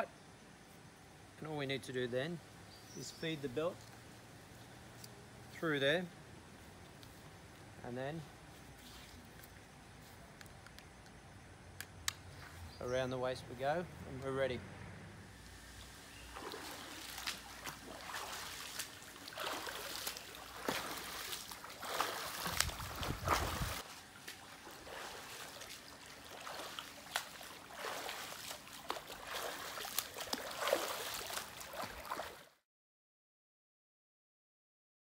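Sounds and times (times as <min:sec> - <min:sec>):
churned water wash: 0:15.4 - 0:32.5
arms slapping into water: 0:16.3 - 0:32.5.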